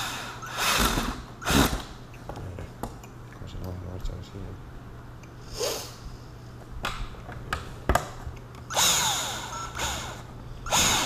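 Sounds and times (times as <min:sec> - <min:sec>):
cordless drill driving screws: 0:00.0 - 0:01.9, 0:08.7 - 0:11.0.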